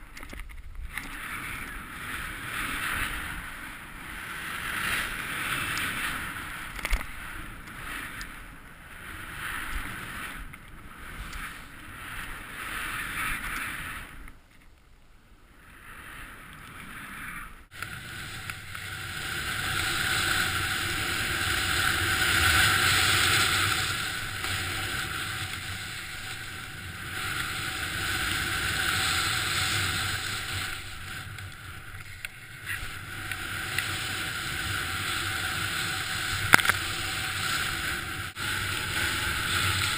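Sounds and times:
snow hissing under snowboard: 17.0 - 39.9.

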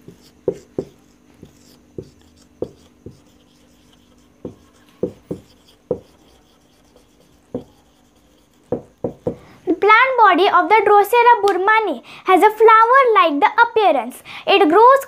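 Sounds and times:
marker pen writing on whiteboard: 0.0 - 9.4.

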